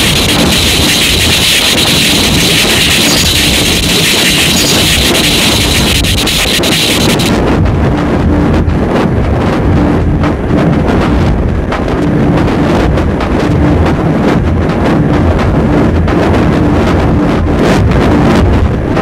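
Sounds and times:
stuttering tone: 0:00.0 - 0:07.4
choppy low rumble: 0:00.0 - 0:19.0
wall of distorted noise: 0:00.0 - 0:19.0.

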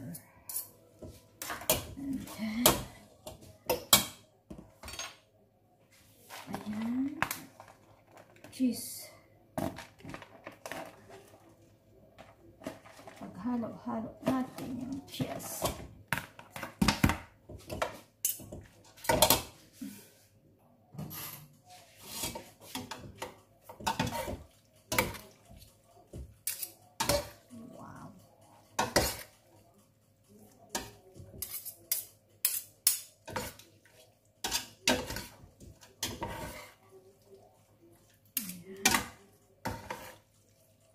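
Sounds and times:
metal utensils scraping a pot: 0:21.0 - 0:25.7, 0:26.4 - 0:27.5, 0:28.4 - 0:29.5, 0:30.6 - 0:37.0, 0:38.3 - 0:40.9.

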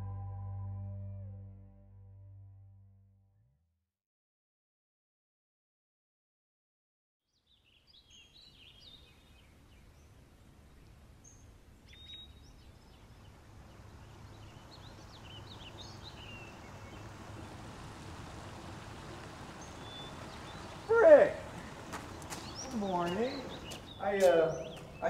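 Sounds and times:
small birds chirping: 0:07.3 - 0:25.0.

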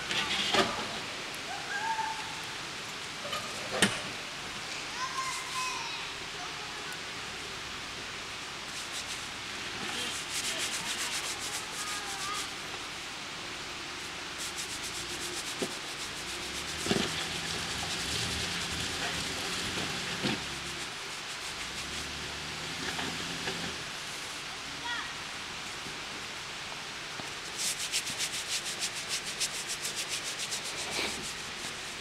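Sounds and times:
tyres grinding over rock: 0:15.0 - 0:23.9
engine low drone: 0:15.2 - 0:24.5.

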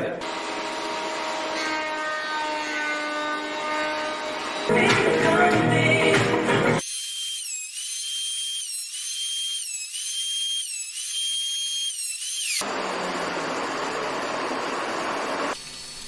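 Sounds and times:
wood cutting rushing noise: 0:00.2 - 0:04.8, 0:06.8 - 0:16.0
machine motor whine: 0:09.0 - 0:16.0.

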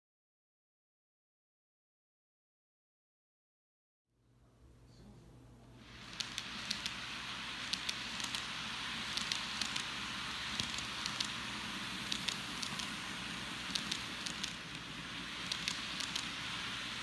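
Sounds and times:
model train rolling hiss: 0:05.8 - 0:17.0.

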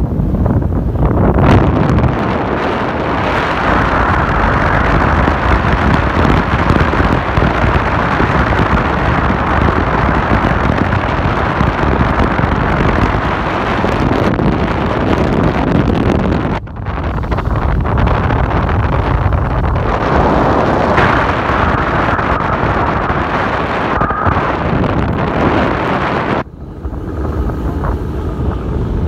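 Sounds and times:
ship low rumble: 0:00.0 - 0:29.0
wind buffeting microphone: 0:00.0 - 0:29.0.

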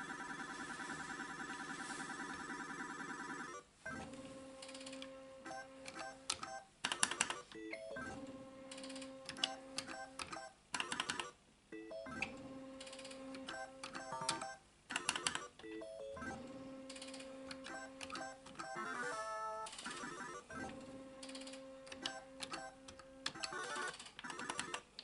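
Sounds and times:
rattle of beeps and clicks: 0:11.9 - 0:18.9.

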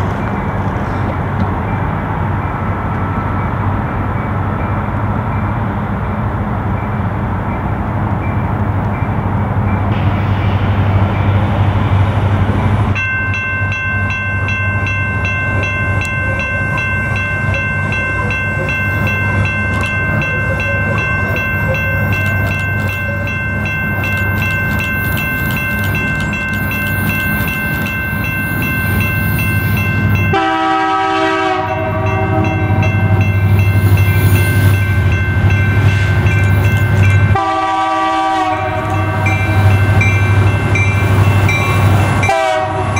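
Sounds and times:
diesel locomotives rumbling: 0:00.0 - 0:42.9
steady high-pitched tone: 0:13.0 - 0:30.8, 0:31.6 - 0:42.4
locomotive air horn chord: 0:30.3 - 0:33.2, 0:37.3 - 0:39.9, 0:41.7 - 0:42.9.

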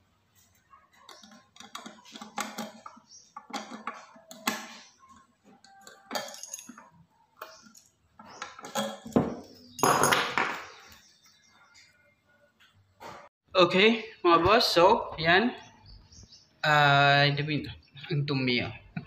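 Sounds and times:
metal hardware clinking: 0:01.1 - 0:10.5.

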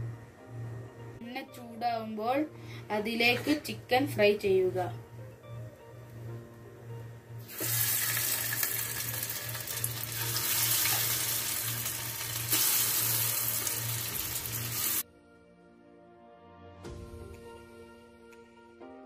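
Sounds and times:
soft background music: 0:00.0 - 0:19.0
chicken sizzling in hot oil: 0:07.4 - 0:15.0.

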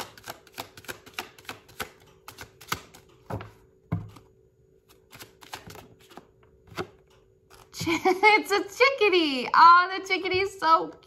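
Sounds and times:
cards being shuffled: 0:04.9 - 0:07.8.

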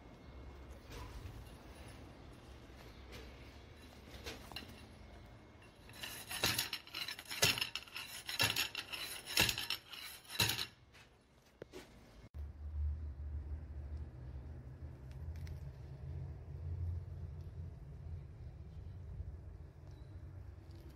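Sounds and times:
metal pipe scraping: 0:00.7 - 0:11.0.

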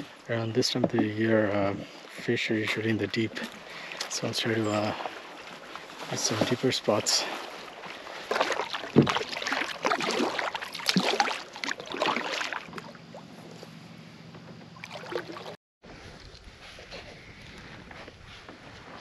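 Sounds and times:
paddle splashing water: 0:00.0 - 0:13.6, 0:14.8 - 0:17.1.

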